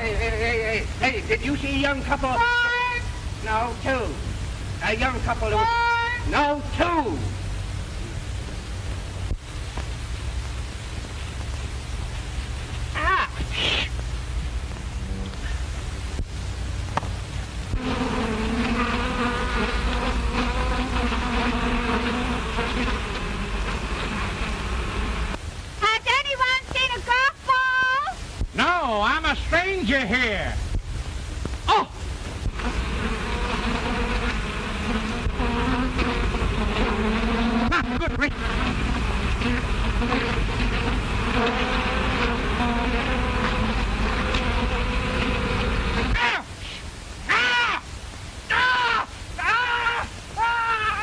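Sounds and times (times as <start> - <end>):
film soundtrack hiss: 0.0 - 51.0
bees buzzing: 10.4 - 25.4, 32.2 - 46.4.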